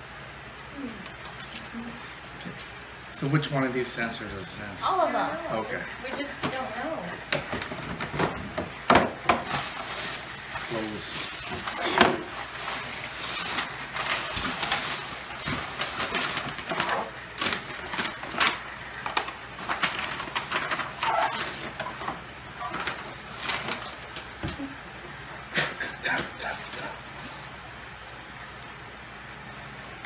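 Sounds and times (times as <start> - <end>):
paper rustling and crinkling: 9.2 - 24.4.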